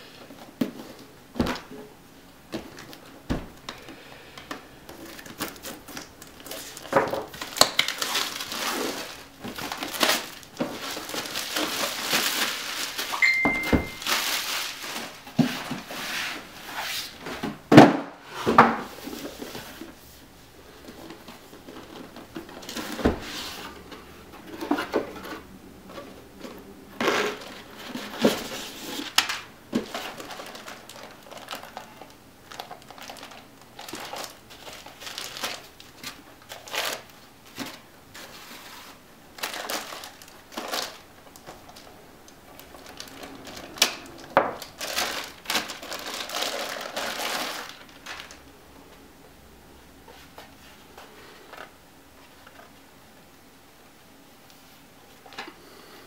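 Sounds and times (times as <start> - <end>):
cardboard rustling and scraping: 4.8 - 13.1, 13.8 - 41.9.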